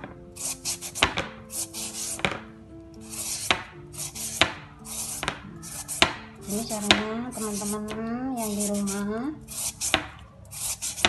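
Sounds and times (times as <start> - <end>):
peeler rasping papaya: 3.0 - 11.0.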